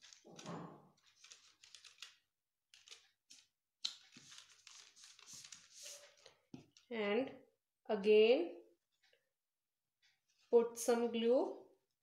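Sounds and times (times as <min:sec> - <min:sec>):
paper rustling and rubbing: 0:00.0 - 0:02.2, 0:02.8 - 0:06.4.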